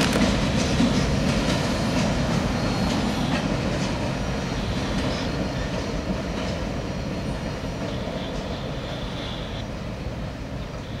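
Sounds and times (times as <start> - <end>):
freight cars rumbling on rails: 0.0 - 11.0.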